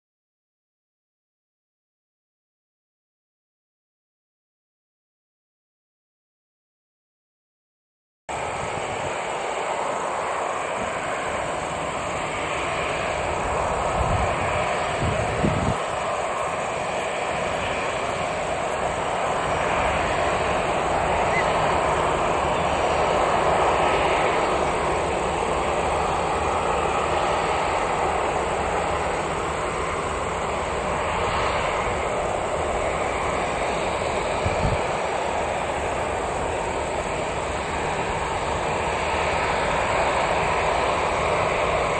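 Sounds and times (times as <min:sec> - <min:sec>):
turboprop engines droning: 0:08.3 - 0:41.9.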